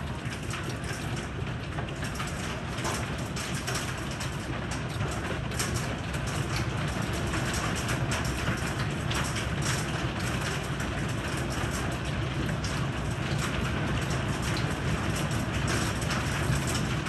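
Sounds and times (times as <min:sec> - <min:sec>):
hailstones ticking on wood: 0:00.1 - 0:17.0.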